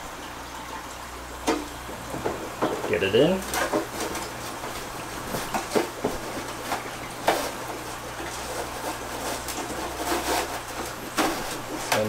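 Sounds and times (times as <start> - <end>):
clicks and knocks in plastic basket: 1.5 - 12.0.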